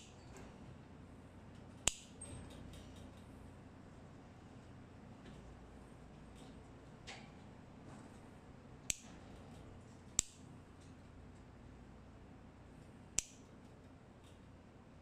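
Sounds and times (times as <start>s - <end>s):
nail clipper clicks: 1.8s - 2.2s, 8.9s - 9.2s, 10.1s - 10.4s, 13.2s - 13.5s.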